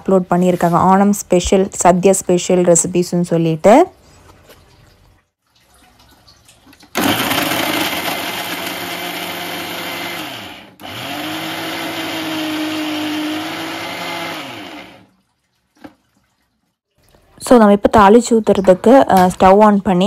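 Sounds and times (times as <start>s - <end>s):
mixer grinder motor running: 7.0s - 15.1s.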